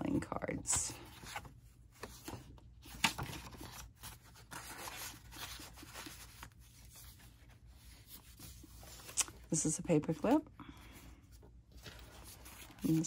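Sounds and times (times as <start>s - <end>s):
paper rustling and sliding: 1.0s - 9.5s, 11.3s - 13.0s.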